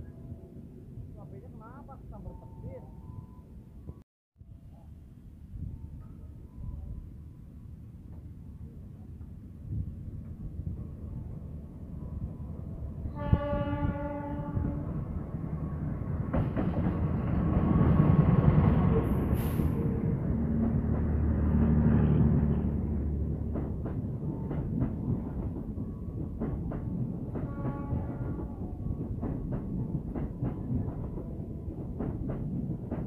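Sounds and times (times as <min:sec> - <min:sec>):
train rumbling past: 0:00.0 - 0:33.0
train horn blast: 0:13.1 - 0:15.0, 0:27.4 - 0:28.6
brief hiss: 0:19.3 - 0:19.9.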